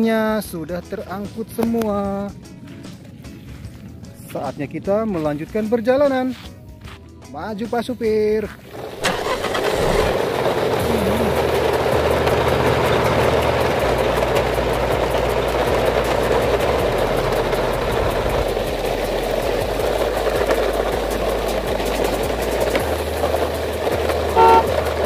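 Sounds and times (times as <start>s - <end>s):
vehicle engine rough rumble: 8.6s - 25.0s.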